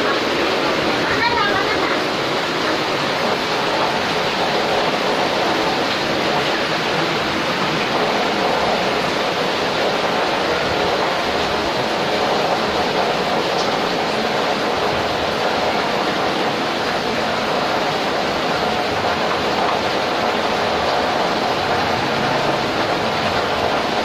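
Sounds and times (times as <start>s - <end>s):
water boiling hard in metal pot: 0.0s - 24.0s.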